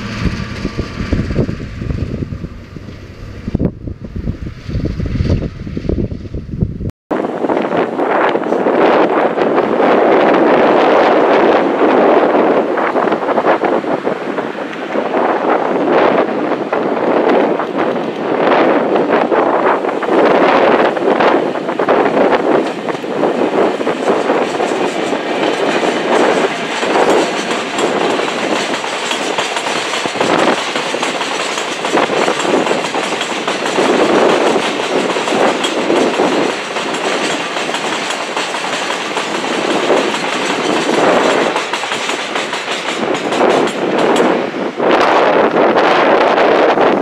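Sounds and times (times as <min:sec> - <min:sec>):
train wheels clattering over rail joints: 0:19.9 - 0:44.6.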